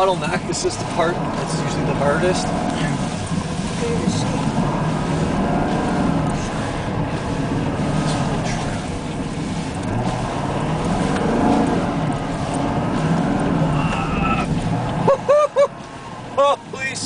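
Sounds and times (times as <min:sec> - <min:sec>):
car engine working hard: 0:00.0 - 0:17.0.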